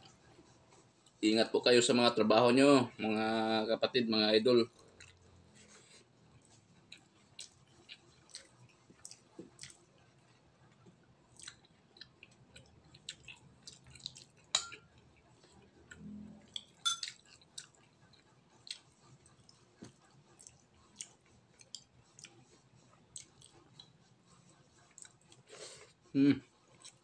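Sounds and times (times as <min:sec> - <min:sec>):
man chewing with wet mouth sounds: 0:00.0 - 0:01.2, 0:04.6 - 0:27.0
mouth clicks and smacks: 0:06.9 - 0:09.8, 0:11.3 - 0:14.5, 0:24.9 - 0:25.4.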